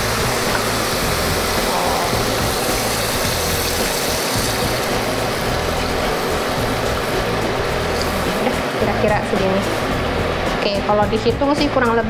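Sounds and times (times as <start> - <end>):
water pouring into hot pan: 0.0 - 8.8.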